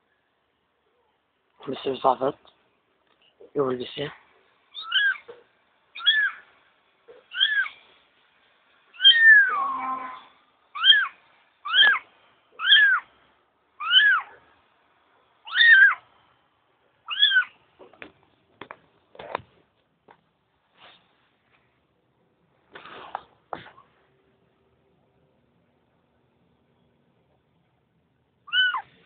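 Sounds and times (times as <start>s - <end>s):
kitten meowing: 4.7s - 5.4s, 6.0s - 6.4s, 7.3s - 7.8s, 9.0s - 12.0s, 12.6s - 13.0s, 13.8s - 14.4s, 15.4s - 16.0s, 17.1s - 17.6s, 28.4s - 28.9s.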